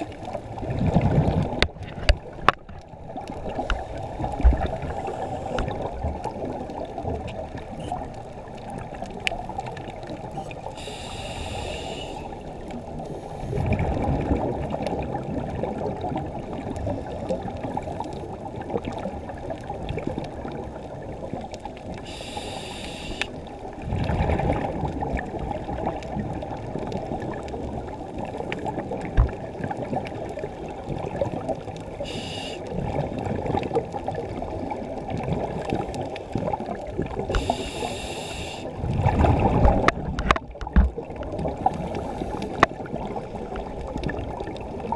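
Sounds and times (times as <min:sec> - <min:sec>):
gurgling exhaled bubbles: 0:00.0 - 0:44.9
muffled underwater noise: 0:03.3 - 0:13.6, 0:21.8 - 0:23.6, 0:31.4 - 0:32.8, 0:33.8 - 0:44.9
regulator inhalation hiss: 0:04.8 - 0:05.6, 0:10.7 - 0:12.4, 0:22.0 - 0:23.3, 0:32.0 - 0:32.6, 0:37.3 - 0:38.7.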